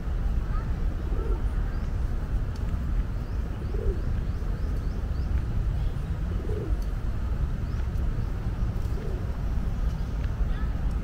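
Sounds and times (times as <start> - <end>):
steady low rumble: 0.0 - 11.0
dove cooing: 1.0 - 1.5, 3.5 - 4.1, 6.3 - 6.8, 8.8 - 9.4.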